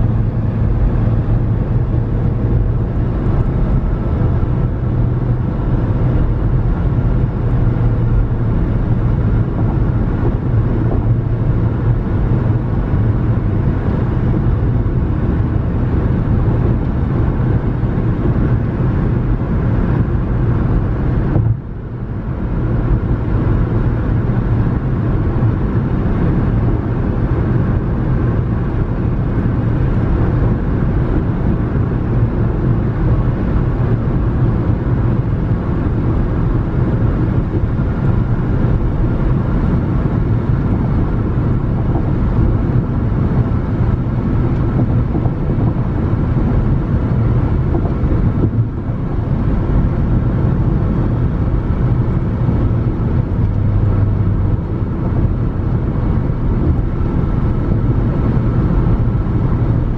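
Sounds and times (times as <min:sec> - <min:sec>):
car engine and tyre road noise: 0:00.0 - 0:59.9.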